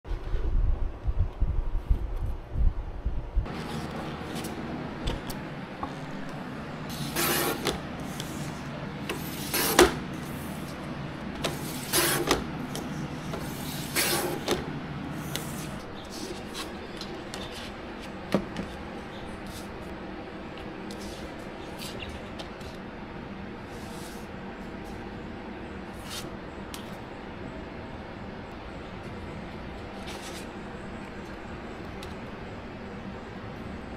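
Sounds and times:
low hum: 0.1s - 7.2s
paper trimmer swishing cuts: 6.9s - 8.4s.

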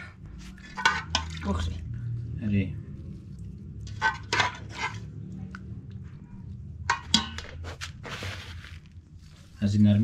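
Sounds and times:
dry bread rustling by hand: 7.4s - 10.0s.

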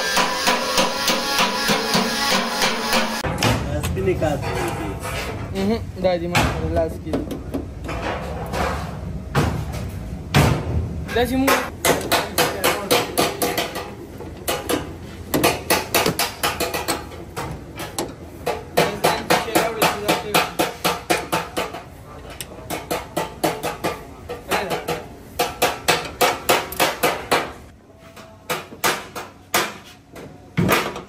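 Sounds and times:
hammer on sheet metal: 0.0s - 3.7s, 11.4s - 21.9s, 22.6s - 27.6s, 28.2s - 30.0s.

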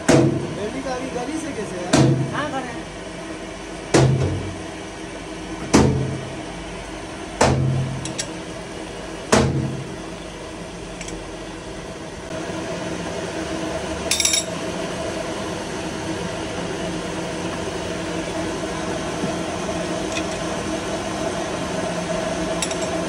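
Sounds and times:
lathe humming: 0.0s - 3.8s.

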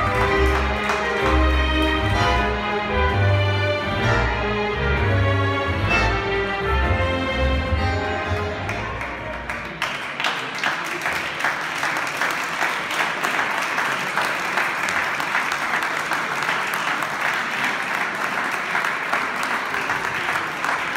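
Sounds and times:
audience applauding: 0.0s - 2.6s, 8.2s - 20.9s.

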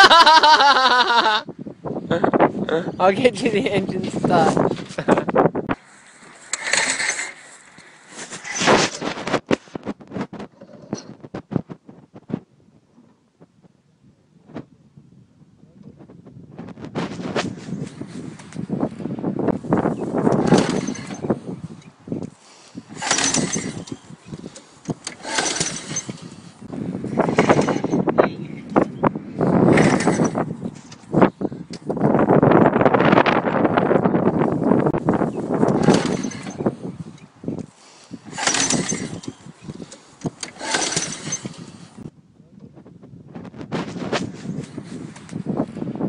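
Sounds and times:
mower engine cranking: 4.0s - 11.2s, 19.7s - 28.2s, 29.4s - 32.0s, 34.5s - 42.1s
starter cord pulls: 6.2s - 11.2s, 20.2s - 26.5s, 27.1s - 28.1s, 29.7s - 31.1s, 35.6s - 37.7s, 38.3s - 42.0s.

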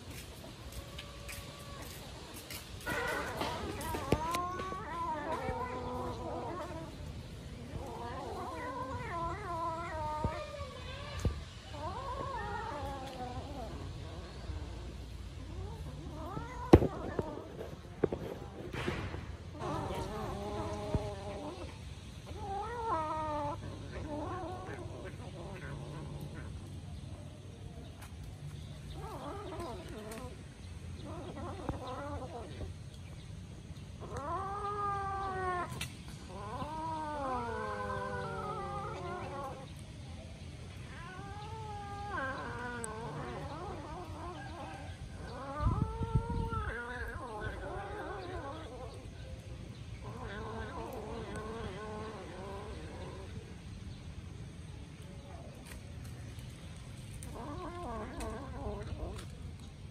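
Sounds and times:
kittens meowing: 2.8s - 18.2s, 34.0s - 39.9s, 40.7s - 49.2s, 50.0s - 53.6s, 57.0s - 59.6s
kitten growling: 40.8s - 49.1s, 50.0s - 53.5s, 57.2s - 59.5s.

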